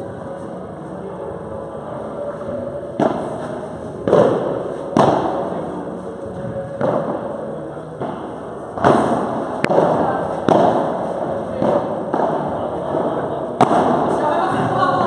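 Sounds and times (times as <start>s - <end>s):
ball struck by rackets: 3.0s - 5.6s, 6.8s - 7.4s, 8.0s - 14.7s.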